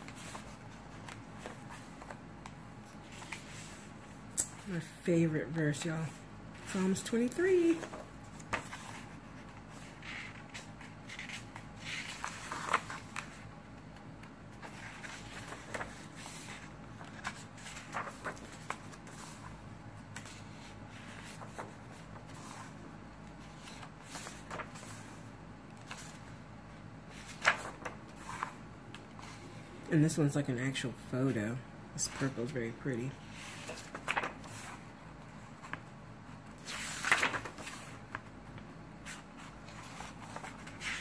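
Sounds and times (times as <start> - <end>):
paper pages turning: 0.0 - 4.6, 6.6 - 25.2, 27.1 - 29.4, 33.2 - 41.0.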